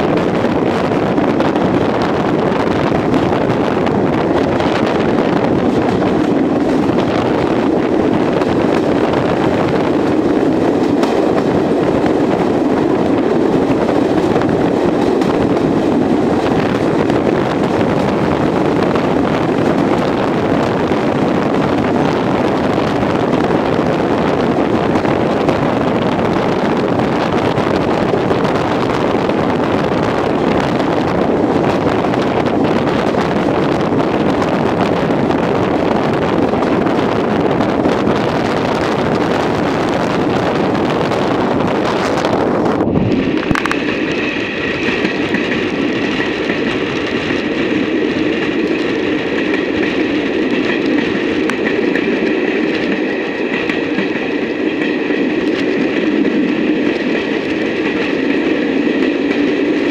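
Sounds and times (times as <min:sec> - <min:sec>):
train running noise: 0:00.0 - 0:59.9
wind noise on microphone: 0:00.0 - 0:59.9.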